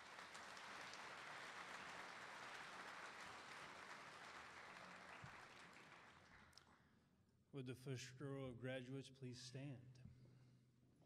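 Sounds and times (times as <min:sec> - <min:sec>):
faint audience applause: 0:00.0 - 0:06.8.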